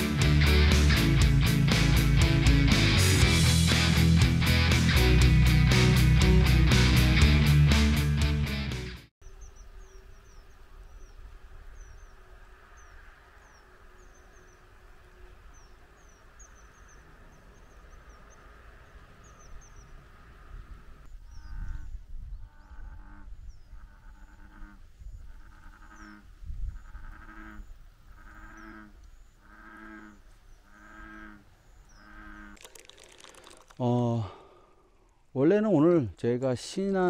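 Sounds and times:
small birds chirping: 9.2s - 27.0s, 28.1s - 36.6s
wind rumble: 9.6s - 28.4s.

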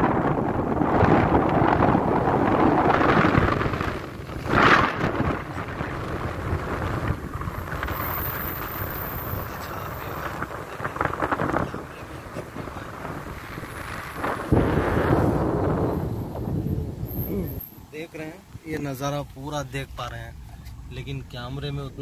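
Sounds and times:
wind rushing over microphone: 0.0s - 18.9s
car road noise: 0.0s - 22.0s.

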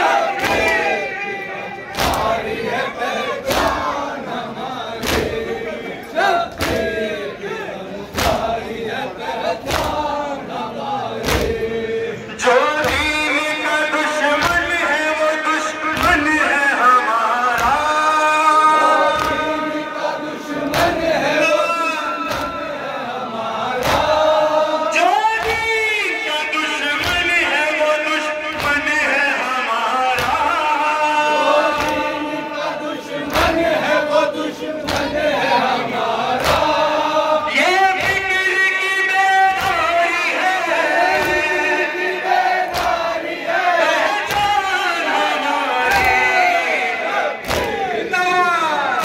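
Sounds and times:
man reciting into a microphone: 0.0s - 49.0s
men chanting a lament: 0.0s - 49.0s
chest-beating slaps: 1.9s - 2.7s, 5.0s - 5.5s, 6.5s - 7.0s, 8.1s - 8.7s, 9.6s - 10.2s, 11.2s - 11.7s, 17.5s - 17.9s, 19.1s - 19.6s, 22.3s - 22.6s, 23.8s - 24.4s, 28.5s - 28.9s, 30.2s - 30.5s, 31.7s - 32.2s, 33.2s - 33.8s, 34.8s - 35.3s, 36.3s - 37.1s, 37.9s - 38.4s, 39.5s - 40.0s, 41.1s - 41.6s, 42.6s - 43.2s, 45.9s - 46.3s, 47.4s - 47.9s.

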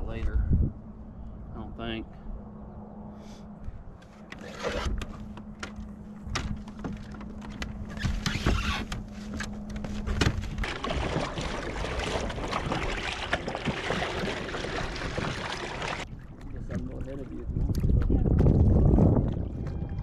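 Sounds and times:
steady low hum: 0.0s - 8.2s
water lapping against hull: 4.1s - 20.0s.

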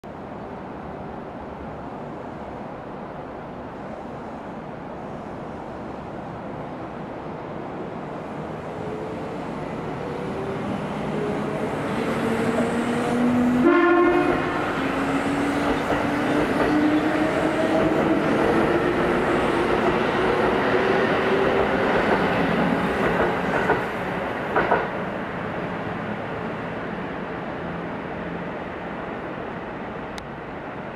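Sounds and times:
train horn blast: 13.6s - 15.0s.

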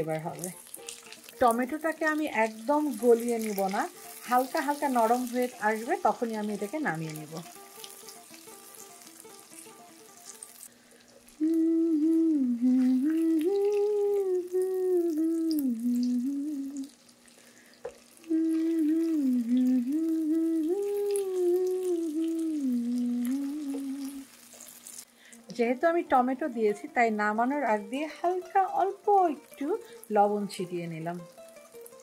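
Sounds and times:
vegetables sizzling in oil: 0.0s - 32.0s
person humming a slow tune: 11.4s - 17.0s, 18.2s - 24.4s.

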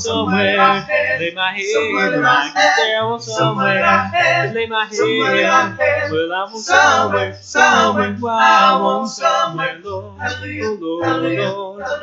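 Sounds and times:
bass voice holding low notes: 0.0s - 6.2s, 6.8s - 12.0s
male a cappella group singing: 0.0s - 12.0s.

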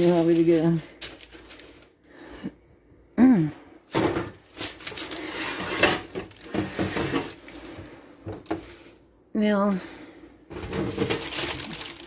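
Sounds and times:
paper rustling and crinkling: 0.0s - 2.0s, 4.0s - 7.8s, 10.6s - 12.0s.

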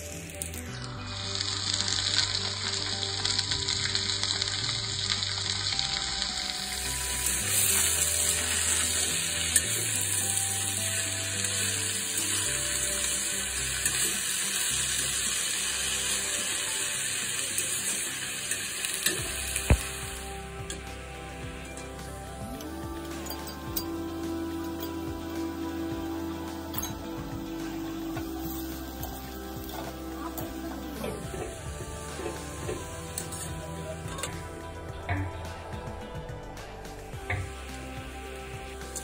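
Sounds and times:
onions and greens sizzling in a pan: 0.0s - 39.0s.

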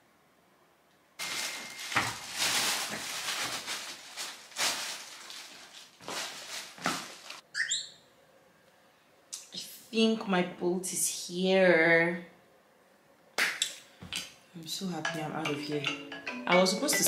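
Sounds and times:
bag rustling: 1.2s - 7.4s
quick squeaks: 7.5s - 8.0s.

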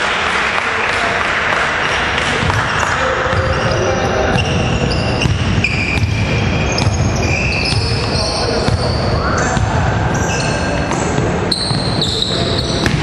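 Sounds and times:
sneakers squeaking on wooden floor: 1.8s - 13.0s
basketball dribbling on hardwood: 2.4s - 8.9s.

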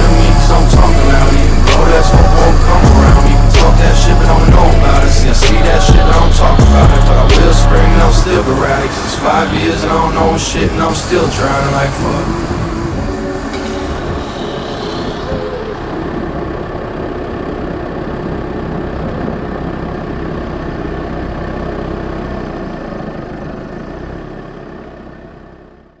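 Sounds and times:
road noise rumbling: 0.0s - 26.0s
wind: 8.2s - 25.9s
wheels rolling on asphalt: 14.0s - 26.0s.

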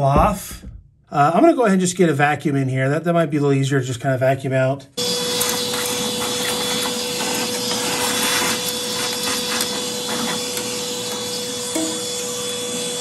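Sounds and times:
vacuum cleaner whining: 5.0s - 13.0s.

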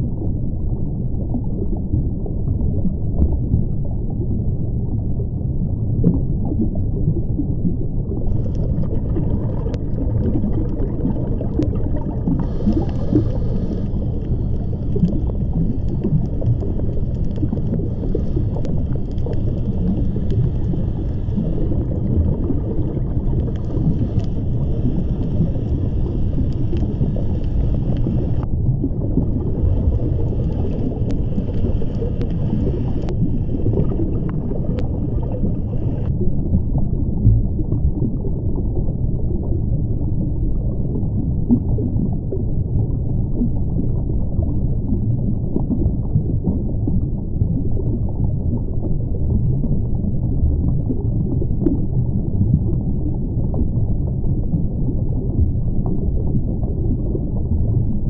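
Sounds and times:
low rumble of moving water: 0.0s - 58.0s
faint clicks: 11.6s - 28.5s, 29.7s - 36.1s.

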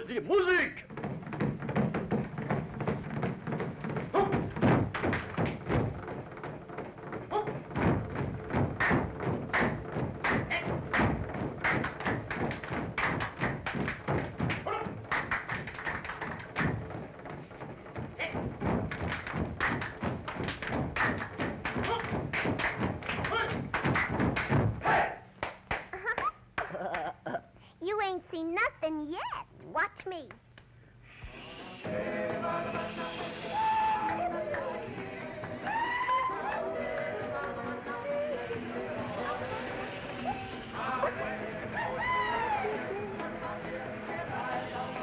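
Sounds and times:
rhythmic percussion thumps and taps: 0.5s - 27.1s, 31.2s - 45.0s
group body slapping: 0.9s - 27.2s
voices chanting: 31.1s - 45.0s.

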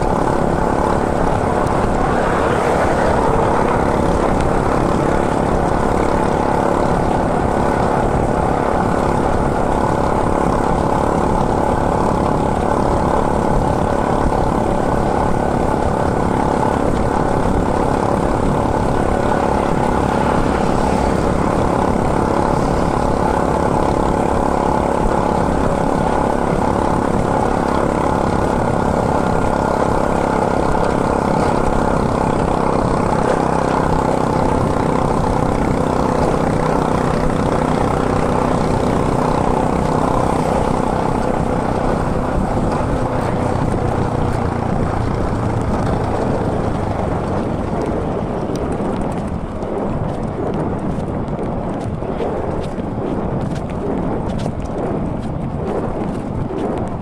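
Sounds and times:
mountain bike tyre road drone: 0.0s - 57.0s.

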